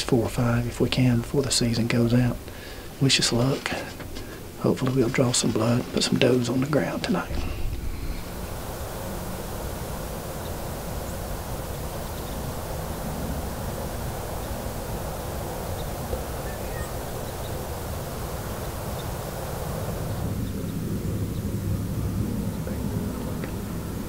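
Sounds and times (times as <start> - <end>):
wind rumbling on microphone: 0.0 - 24.0
faint high chirps: 15.4 - 19.4.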